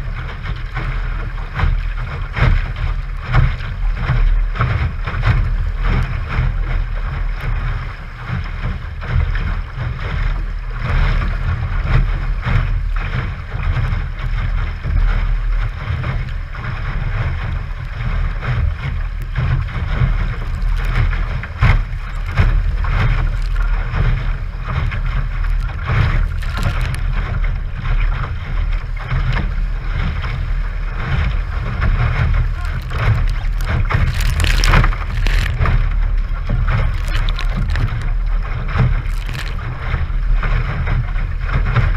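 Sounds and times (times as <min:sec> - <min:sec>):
water slapping against hull: 0:00.0 - 0:41.9
sharp water splashes: 0:17.2 - 0:29.1, 0:31.5 - 0:40.6.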